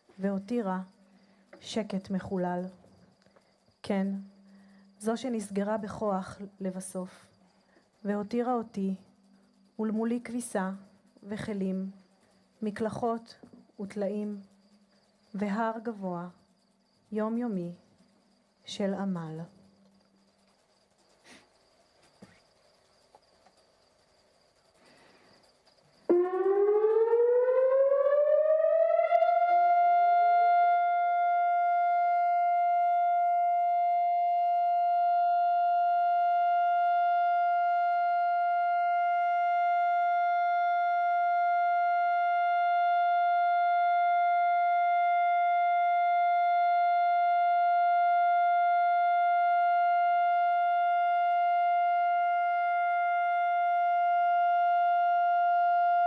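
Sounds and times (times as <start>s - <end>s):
siren holding a steady tone: 26.0s - 56.0s.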